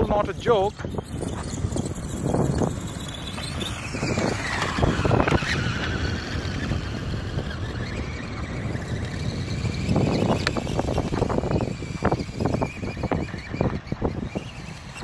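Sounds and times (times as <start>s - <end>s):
electric motor whining: 0.0s - 15.0s
wind rumble on microphone: 0.0s - 15.0s.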